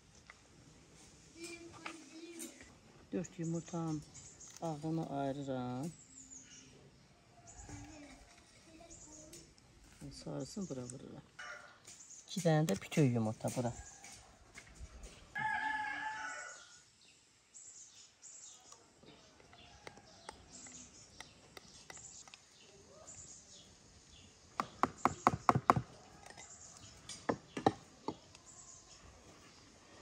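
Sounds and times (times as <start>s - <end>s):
rooster crowing: 15.3s - 16.8s.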